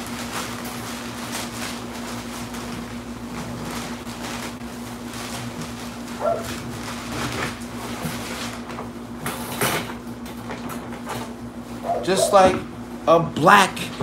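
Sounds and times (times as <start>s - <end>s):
steady electrical hum: 0.0s - 14.0s
dog whining and yelping: 6.2s - 6.6s, 11.8s - 12.4s.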